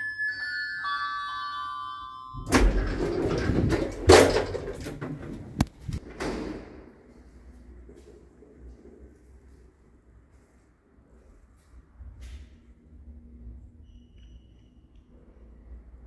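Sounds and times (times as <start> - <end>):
lift arrival chime melody: 0.0 - 3.2.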